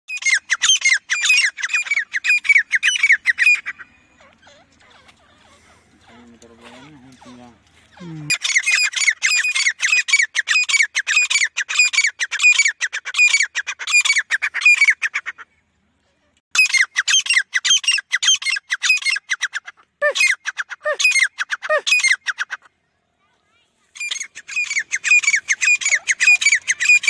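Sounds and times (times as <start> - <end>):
francolins calling: 0.1 - 15.6, 16.6 - 22.7, 24.0 - 27.0.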